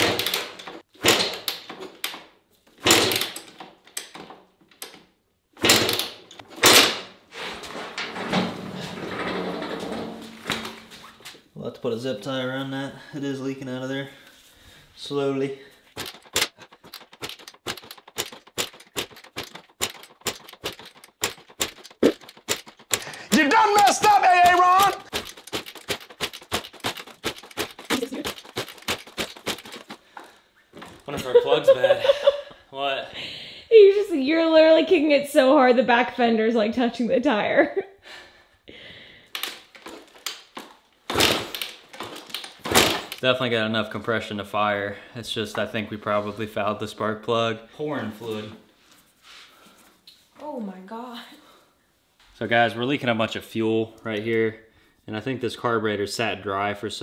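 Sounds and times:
dirt bike engine turning over: 0:16.0 - 0:30.2.

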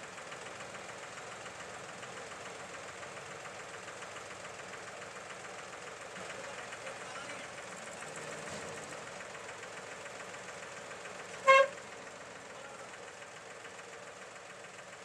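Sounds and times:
tractor diesel engine running: 0:00.0 - 0:15.0
short loud horn toot: 0:11.4 - 0:11.8.

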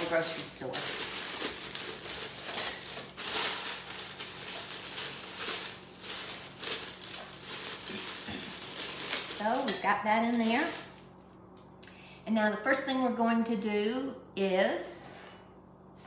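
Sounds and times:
plastic liner rustling: 0:00.0 - 0:11.0.

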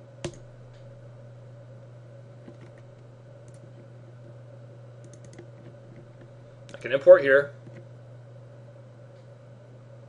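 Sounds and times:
low electrical hum: 0:00.0 - 0:10.0
computer mouse clicks: 0:02.4 - 0:04.4, 0:05.0 - 0:06.8.

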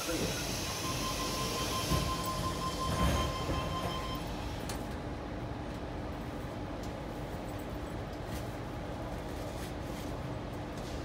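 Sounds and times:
train whine and hiss: 0:00.0 - 0:05.0
stationary train hum: 0:00.0 - 0:11.0.

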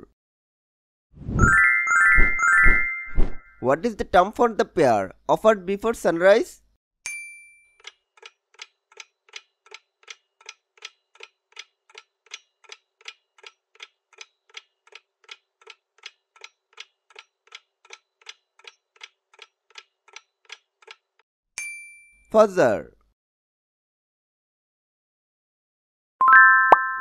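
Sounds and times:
clock-like timer ticking: 0:07.8 - 0:21.2.

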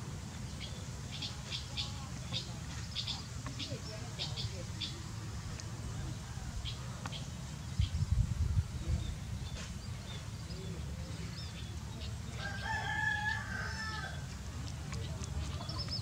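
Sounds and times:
rooster crowing: 0:12.4 - 0:14.2.

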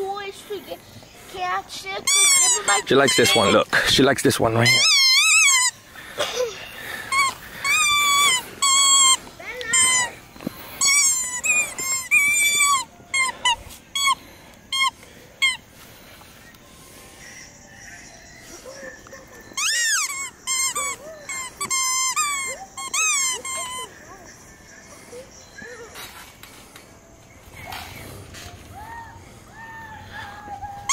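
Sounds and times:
rubber squeaky toy squeaking: 0:02.0 - 0:03.6, 0:04.5 - 0:05.8, 0:07.1 - 0:10.2, 0:10.8 - 0:15.6, 0:19.6 - 0:23.9.

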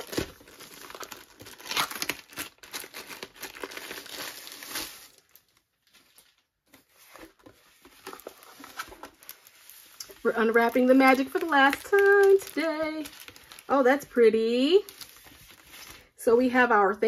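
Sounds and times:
plastic sleeve crinkling: 0:00.0 - 0:16.1
faint handling sounds: 0:05.2 - 0:13.9.

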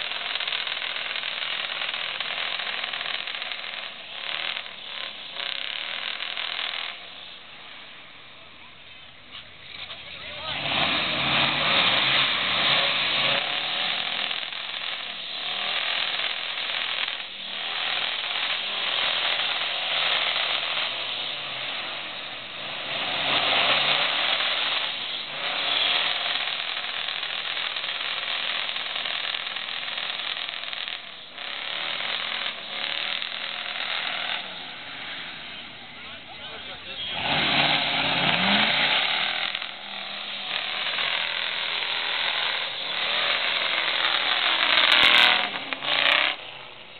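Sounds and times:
truck engine revving: 0:00.0 - 0:07.2, 0:09.7 - 0:46.9
tyres churning through mud: 0:09.7 - 0:46.6.

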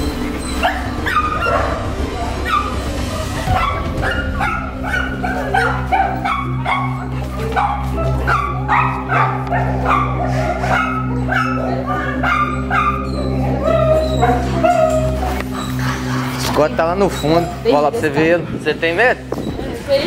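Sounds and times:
steady low hum: 0:00.0 - 0:20.0
dog barking: 0:00.6 - 0:01.8, 0:02.4 - 0:15.8.

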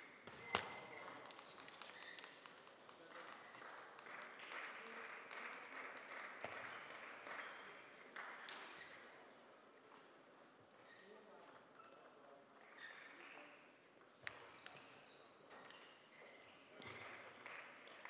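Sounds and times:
faint light applause: 0:01.2 - 0:08.9.

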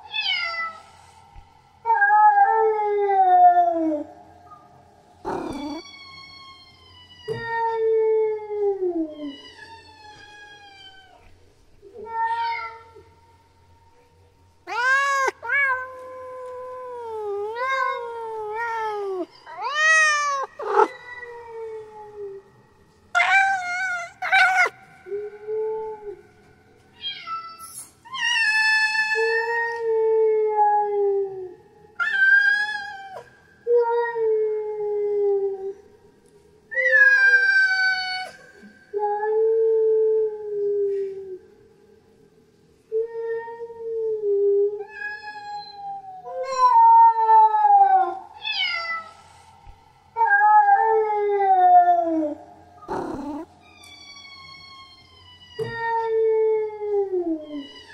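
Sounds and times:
cat yowling: 0:05.2 - 0:05.9, 0:14.7 - 0:22.4, 0:23.2 - 0:26.2, 0:50.2 - 0:53.6.

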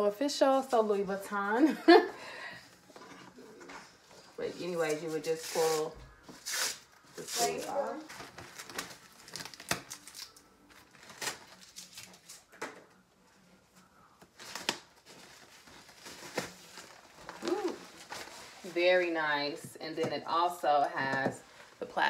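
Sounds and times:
paper sleeve rustling: 0:14.4 - 0:19.0.

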